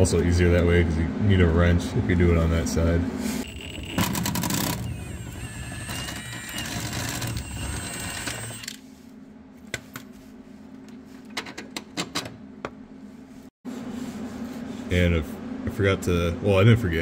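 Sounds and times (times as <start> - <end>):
handheld power tool running: 3.4 - 8.8.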